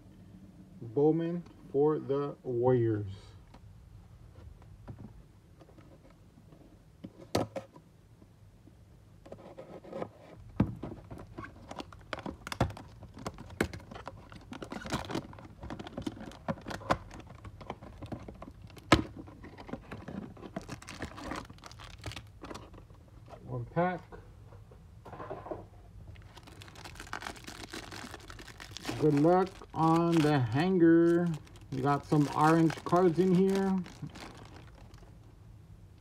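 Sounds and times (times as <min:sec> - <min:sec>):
wrapper crinkling: 0:11.5 - 0:22.8, 0:26.1 - 0:35.2.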